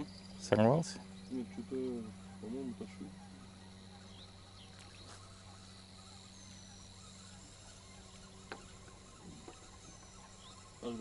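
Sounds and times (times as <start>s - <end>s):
faint bird chirps: 0.0s - 11.0s
steady low hum: 0.0s - 11.0s.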